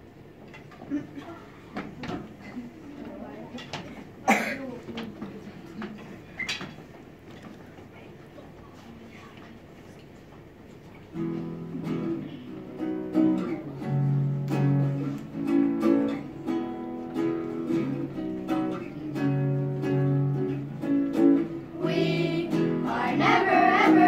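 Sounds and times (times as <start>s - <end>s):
acoustic guitar strumming: 11.2s - 24.0s.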